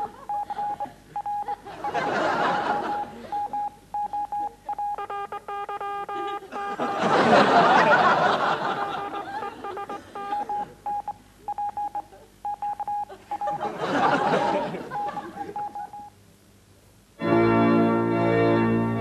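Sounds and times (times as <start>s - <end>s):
censor beeps: 0.0s - 7.4s, 8.4s - 13.6s, 14.9s - 16.1s
chord of beeps: 0.0s - 13.6s, 14.9s - 16.2s.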